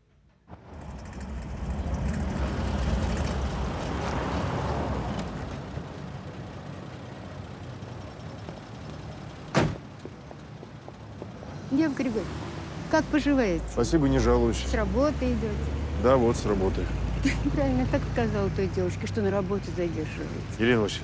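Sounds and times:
car engine idling: 0:00.1 - 0:11.5
car door slamming: 0:09.5 - 0:09.9.

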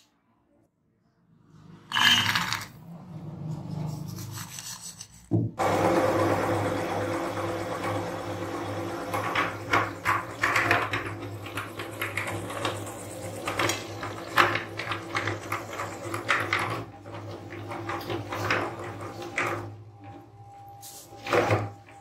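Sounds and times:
candies clicking in grinder: 0:01.9 - 0:02.8, 0:09.3 - 0:16.9
meat grinder humming: 0:05.6 - 0:19.8.

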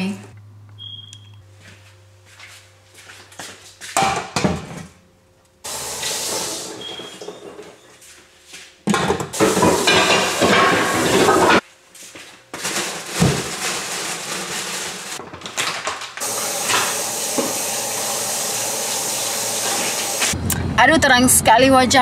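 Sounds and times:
utensils knocking on pots: 0:08.9 - 0:11.6, 0:16.2 - 0:17.8.

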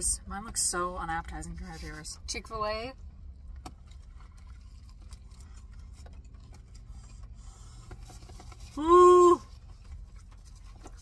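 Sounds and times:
low steady rumble: 0:00.0 - 0:11.0
soft chewing: 0:03.1 - 0:08.8, 0:09.4 - 0:11.0
sandwich wrapper rustling: 0:03.4 - 0:08.8, 0:09.5 - 0:11.0
woman humming high-pitched mmm: 0:08.8 - 0:09.5.

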